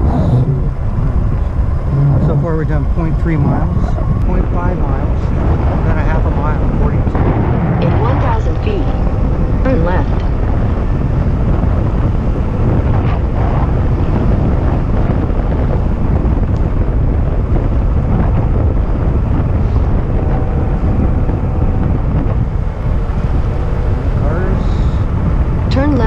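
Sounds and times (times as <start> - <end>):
faint steady hum: 0.0 - 26.0
heavy wind buffeting microphone: 0.0 - 26.0.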